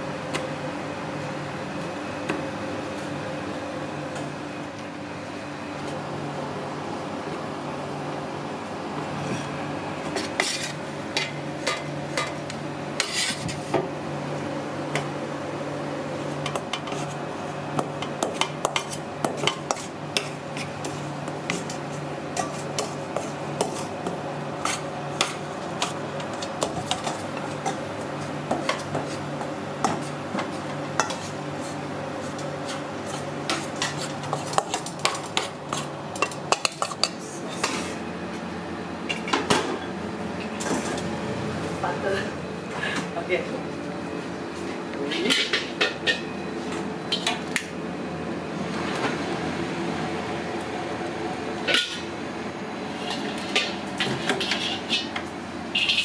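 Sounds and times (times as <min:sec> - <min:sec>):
steady background hum: 0:00.0 - 0:56.0
metal utensil scraping a pan: 0:53.0 - 0:55.2, 0:55.8 - 0:56.0.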